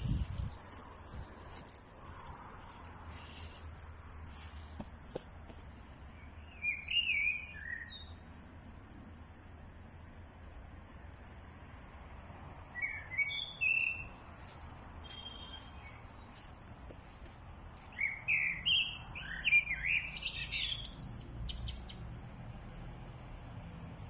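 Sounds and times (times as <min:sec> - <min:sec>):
small birds chirping: 0:00.0 - 0:08.2, 0:11.0 - 0:11.8, 0:12.8 - 0:22.2.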